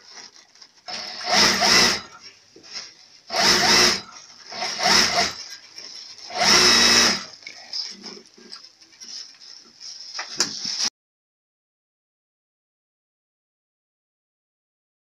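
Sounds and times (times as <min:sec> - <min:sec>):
plastic bag rustling: 0:00.0 - 0:00.9.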